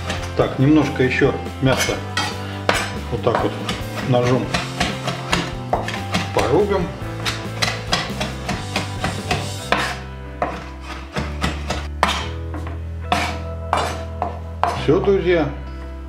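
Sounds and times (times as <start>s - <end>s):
knife chopping on wooden board: 1.7s - 14.8s.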